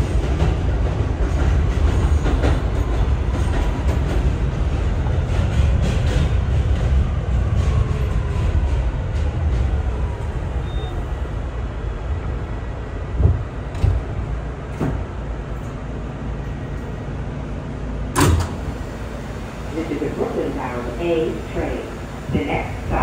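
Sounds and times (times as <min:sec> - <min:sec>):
subway train braking: 0:00.0 - 0:23.0
train doors opening burst: 0:13.2 - 0:15.8, 0:18.1 - 0:19.5.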